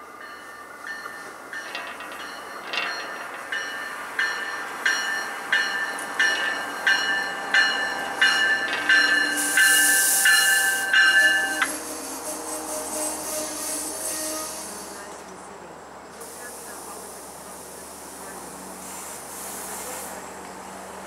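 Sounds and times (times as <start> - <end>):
train bell ringing: 0.0 - 11.9
diesel train arriving: 0.0 - 21.0
burst of hiss: 16.2 - 20.4.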